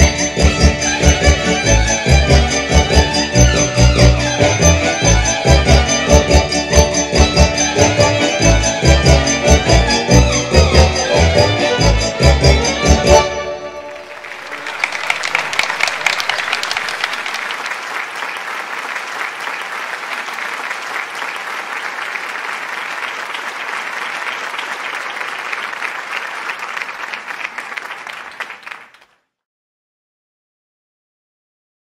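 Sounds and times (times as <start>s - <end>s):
audience applauding: 13.9s - 29.2s.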